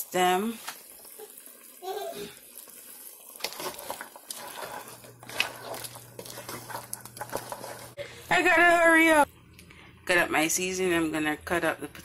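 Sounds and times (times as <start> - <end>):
wooden spoon stirring in pot: 0.0 - 9.2
sauce sloshing: 2.4 - 8.0.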